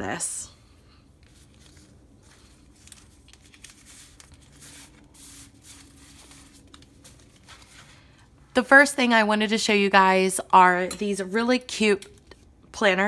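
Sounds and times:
paper sheets rustling and sliding: 0:01.2 - 0:08.2.

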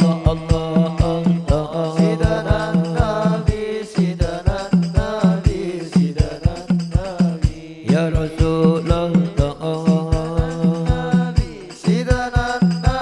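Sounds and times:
person singing ornamented melody: 0:00.0 - 0:06.8
low drum beats: 0:00.0 - 0:13.0.

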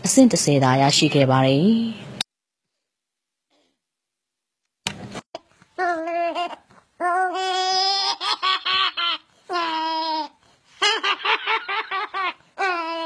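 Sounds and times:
baby laughing: 0:05.8 - 0:13.0.

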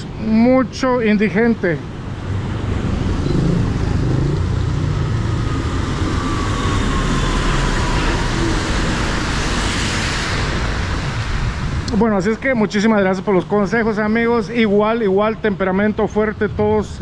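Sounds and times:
engines rumbling: 0:00.0 - 0:17.0
passing vehicle whine: 0:01.8 - 0:12.0
tyres hissing on wet road: 0:02.2 - 0:11.9.

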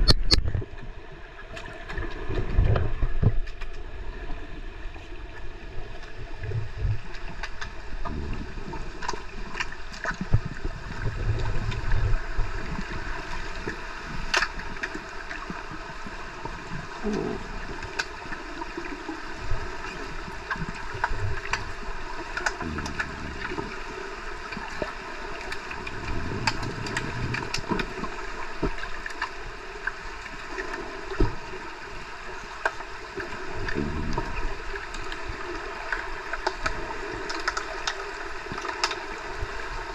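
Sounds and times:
sharp underwater clicks and knocks: 0:00.0 - 0:00.9, 0:01.8 - 0:03.8, 0:06.0 - 0:08.2, 0:13.6 - 0:15.0, 0:20.4 - 0:23.8, 0:24.5 - 0:29.4, 0:31.1 - 0:31.4, 0:35.9 - 0:39.1
churning water rumbling: 0:00.0 - 0:39.9
underwater hiss and hum: 0:00.0 - 0:39.9.

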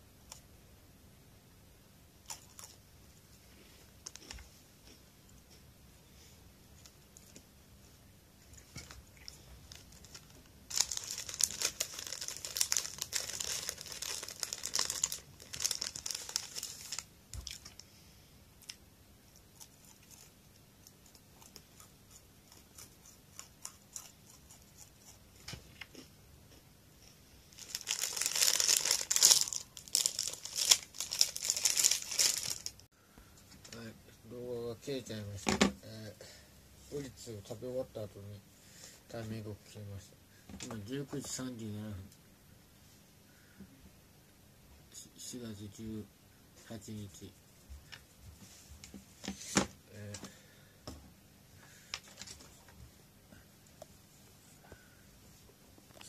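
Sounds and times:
plastic wrapper crinkling: 0:08.8 - 0:17.8, 0:27.5 - 0:32.9.

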